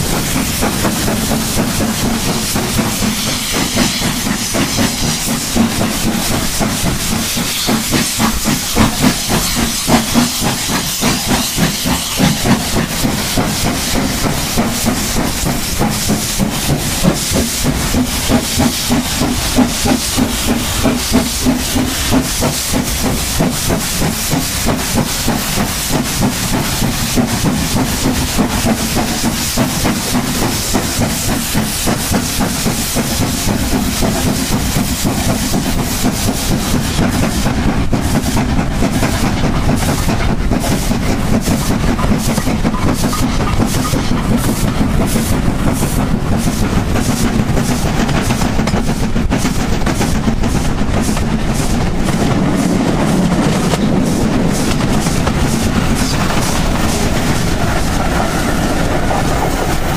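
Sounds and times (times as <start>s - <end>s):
hissing steam: 0.0s - 59.9s
steam locomotive exhaust beats: 0.0s - 59.9s
train wheels clattering on rails: 0.0s - 59.9s.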